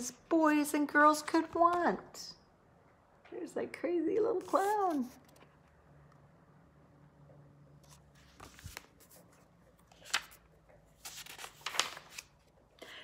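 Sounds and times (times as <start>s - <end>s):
book pages rustling: 7.8s - 12.7s.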